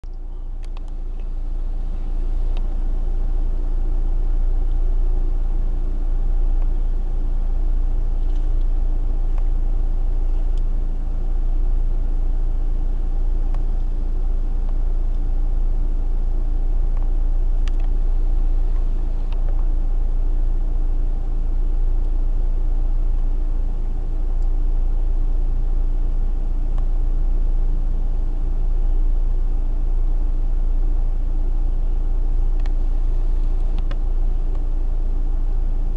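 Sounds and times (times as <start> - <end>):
car engine idling: 0.0 - 35.9
faint clicks: 0.1 - 1.3.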